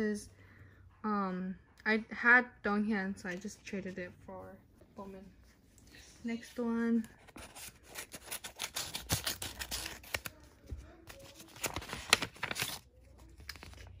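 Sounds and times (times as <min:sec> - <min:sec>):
paper rustling: 0:07.0 - 0:14.0
scissors cutting paper: 0:07.3 - 0:10.5.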